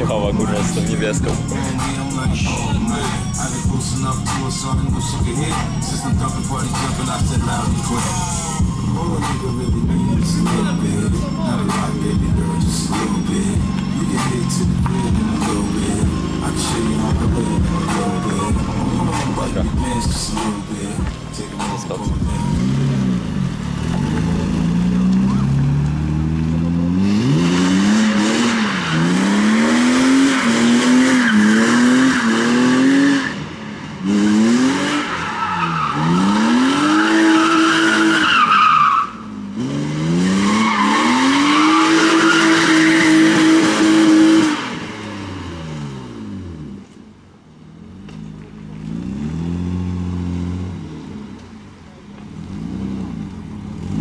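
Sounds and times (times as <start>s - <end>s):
car engine revving: 0.0s - 54.0s
tyres squealing: 34.9s - 39.3s, 40.2s - 44.4s.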